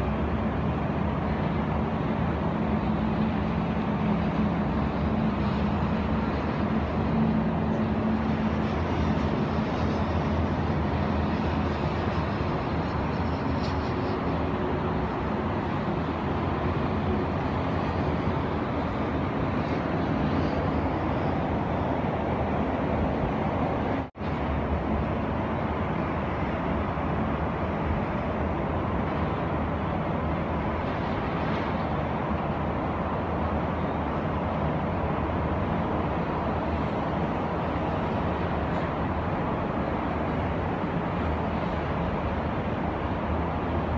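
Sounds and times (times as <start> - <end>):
highway traffic hum: 0.0 - 43.9.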